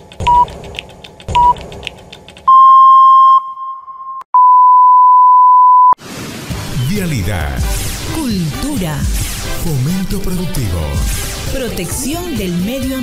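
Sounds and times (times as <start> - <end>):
short beep: 2.5 - 6.0.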